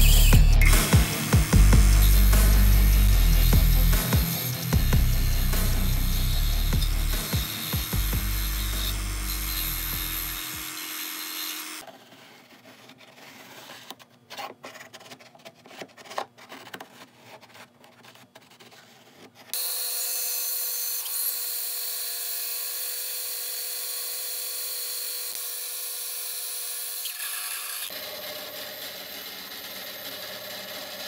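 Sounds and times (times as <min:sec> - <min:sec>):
bandsaw cutting wood: 0:00.0 - 0:11.9, 0:19.5 - 0:31.0
disc sander grinding wood: 0:00.0 - 0:12.6
pen scratching on wood: 0:11.8 - 0:19.6.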